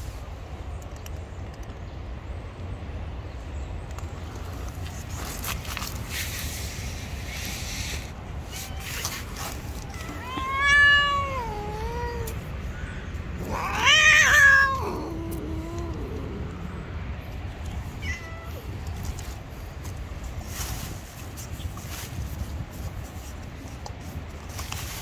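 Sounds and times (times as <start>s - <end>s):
cat meowing: 9.8s - 12.5s, 13.4s - 16.6s, 18.0s - 18.8s.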